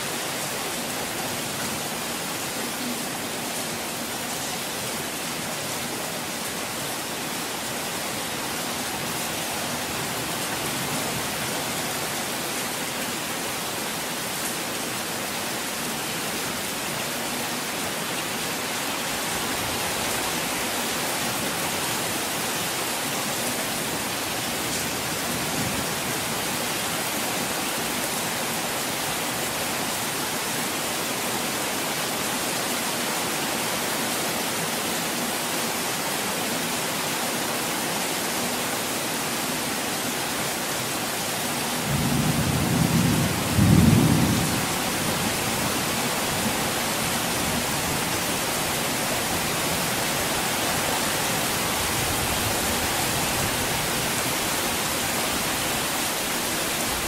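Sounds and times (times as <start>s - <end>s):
heavy rain: 0.0s - 57.0s
low thunder rumble: 41.9s - 44.7s.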